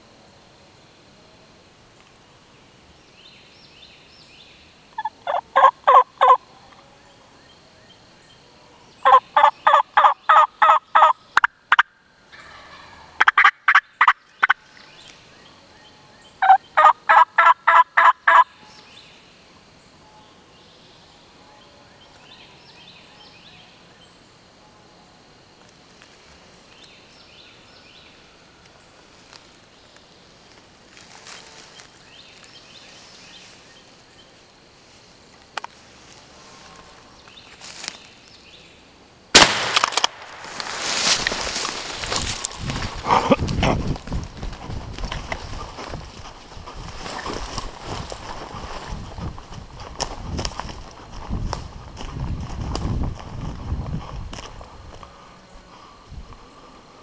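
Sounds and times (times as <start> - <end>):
turkey yelping: 5.0 - 6.4.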